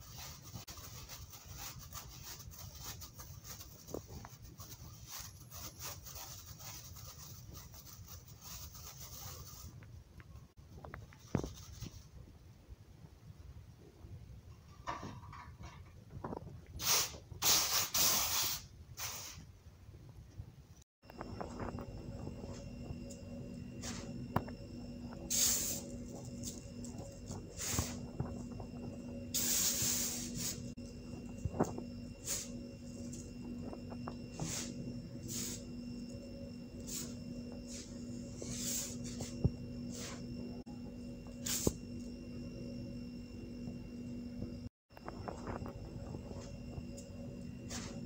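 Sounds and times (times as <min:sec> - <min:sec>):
powder crunching hiss: 0:25.2 - 0:28.6, 0:29.3 - 0:30.8
powder pouring hiss: 0:25.3 - 0:25.9, 0:29.3 - 0:30.6.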